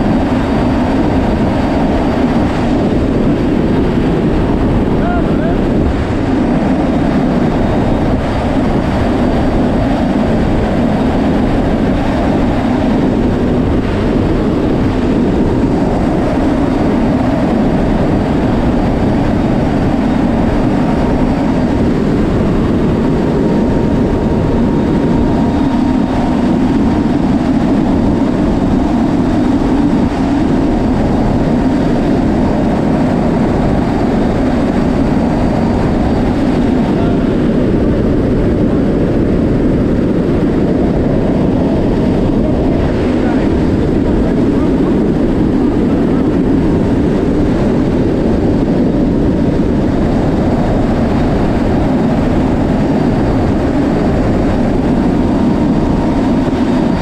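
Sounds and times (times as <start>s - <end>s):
air rushing: 0.0s - 57.0s
turboprop engines running: 0.0s - 57.0s.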